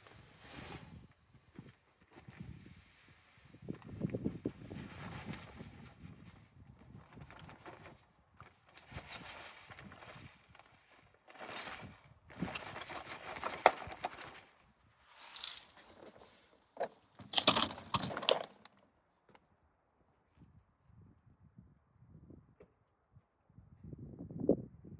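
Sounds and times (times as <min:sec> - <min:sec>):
bag rustling: 0:07.1 - 0:14.5, 0:15.1 - 0:16.5, 0:17.2 - 0:18.7
granules rattling into plastic hopper: 0:11.3 - 0:14.4, 0:15.2 - 0:18.8.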